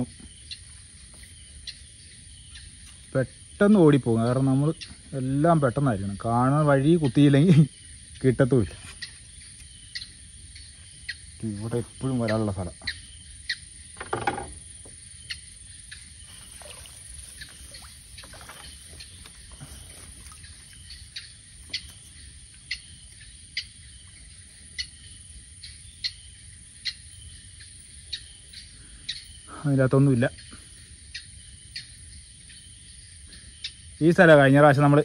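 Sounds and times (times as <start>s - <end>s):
insects trilling: 0.0s - 35.0s
short high insect chirps: 7.5s - 29.5s
canoe paddling water sounds: 13.8s - 23.1s.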